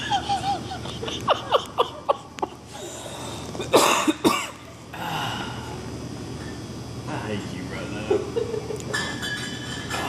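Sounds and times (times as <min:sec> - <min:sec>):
person laughing: 0:00.0 - 0:02.6
man coughing: 0:03.7 - 0:04.6.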